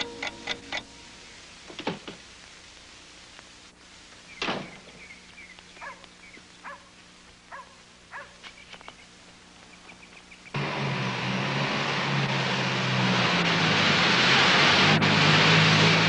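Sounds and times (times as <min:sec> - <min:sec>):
faint steady hum: 0:00.0 - 0:10.6
small birds chirping: 0:04.1 - 0:10.6
dog barking: 0:05.8 - 0:06.9, 0:07.5 - 0:08.4.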